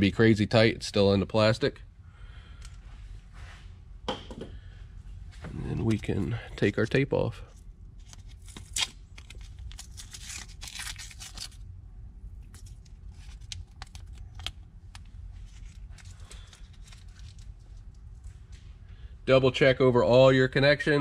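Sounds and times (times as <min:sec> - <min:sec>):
tape crinkling: 0:07.9 - 0:11.6, 0:12.3 - 0:18.3.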